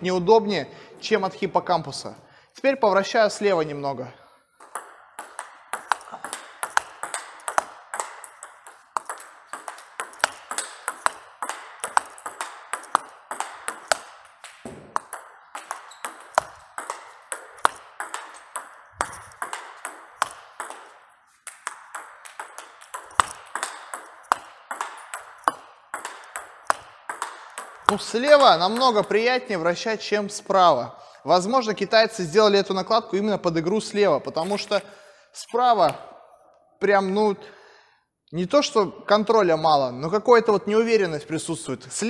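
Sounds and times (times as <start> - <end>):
table tennis ball hits and bounces: 4.6 - 29.3.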